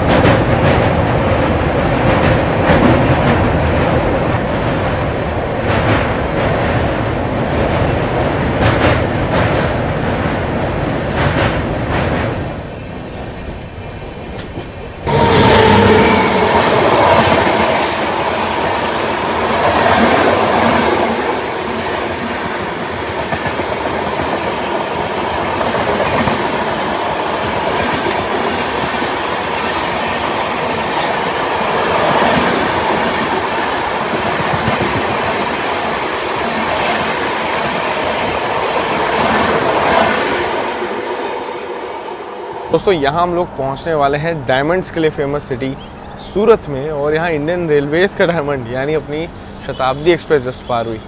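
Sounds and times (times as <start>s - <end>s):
train wheels rolling on rails: 0.0s - 51.0s.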